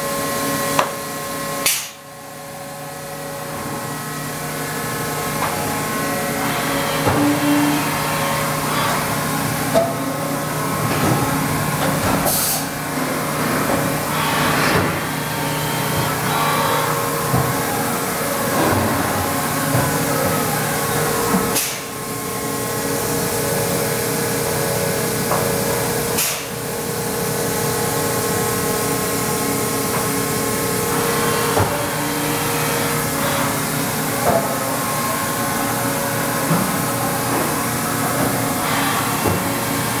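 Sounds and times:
machine hum and hiss: 0:00.0 - 0:40.0
steady machine tone: 0:02.2 - 0:11.8.

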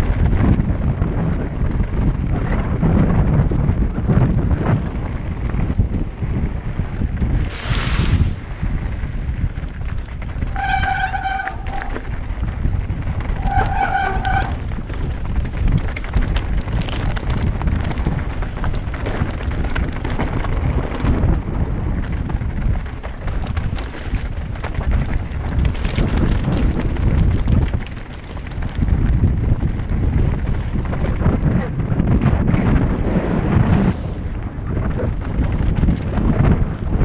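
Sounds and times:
bike rattling: 0:00.0 - 0:37.0
tyres crunching over stones: 0:09.5 - 0:31.5
brakes squealing: 0:10.4 - 0:12.3, 0:13.1 - 0:14.9.

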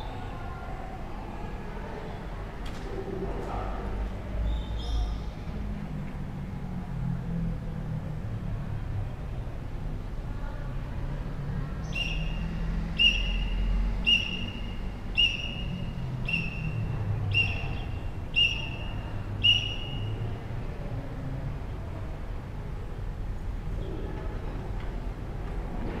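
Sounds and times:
short high whistle blasts: 0:13.0 - 0:17.8, 0:18.4 - 0:20.2.

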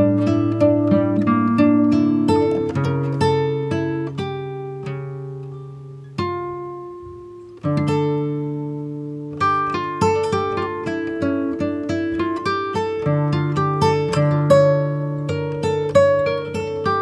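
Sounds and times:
plucked string music: 0:00.0 - 0:17.0.

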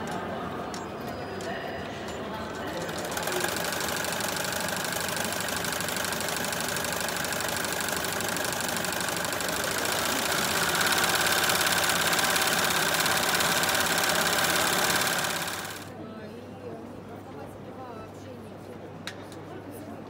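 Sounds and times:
embroidery machine needle clatter: 0:02.7 - 0:15.9.

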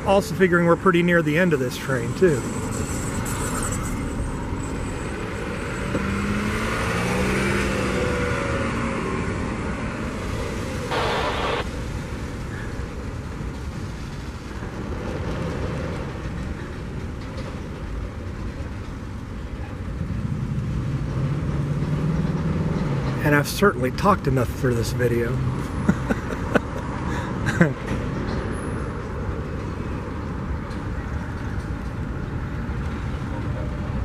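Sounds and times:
steel wheels rolling on rails: 0:00.0 - 0:08.2, 0:11.8 - 0:23.4.

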